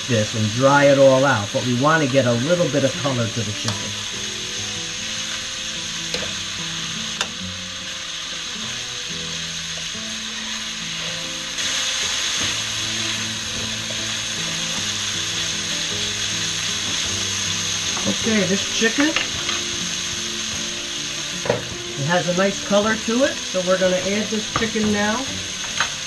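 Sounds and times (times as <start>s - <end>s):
chicken sizzling in frying pan: 0.0s - 26.0s.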